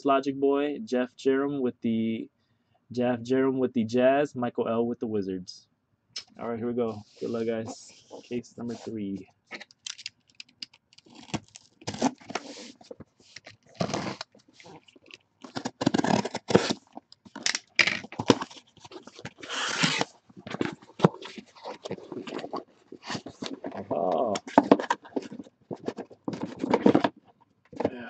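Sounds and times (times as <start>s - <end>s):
cardboard flaps pulled open: 13.7s - 14.7s
box cutter slicing packing tape: 13.8s - 14.2s, 15.5s - 16.8s, 19.3s - 20.1s.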